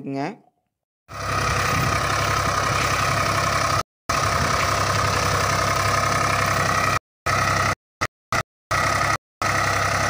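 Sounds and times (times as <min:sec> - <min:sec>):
tractor diesel engine running: 0:01.1 - 0:10.0.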